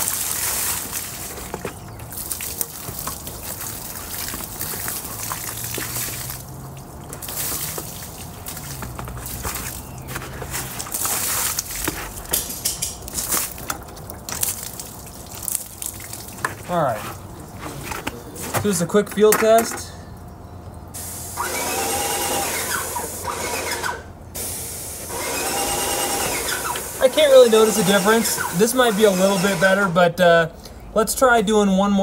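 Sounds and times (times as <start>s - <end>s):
water running onto ground: 0.0s - 18.8s
water splashing on truck panels: 0.0s - 18.8s.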